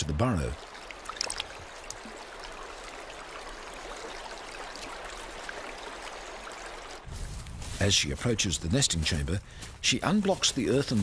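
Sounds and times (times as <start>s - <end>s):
stream water flowing: 0.0s - 7.6s.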